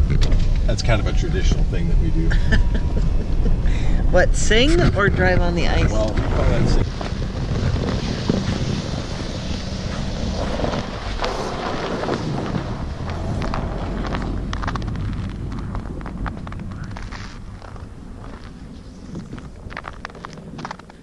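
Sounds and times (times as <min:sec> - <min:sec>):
wind over microphone: 0:00.0 - 0:21.0
tyres crackling on crusted snow: 0:04.4 - 0:21.0
tyre noise on ice: 0:06.9 - 0:21.0.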